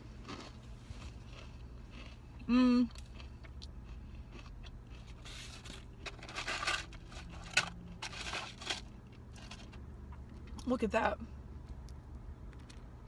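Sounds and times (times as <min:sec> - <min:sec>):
chewing crunchy food: 0:00.0 - 0:06.2
low steady hum: 0:00.0 - 0:13.0.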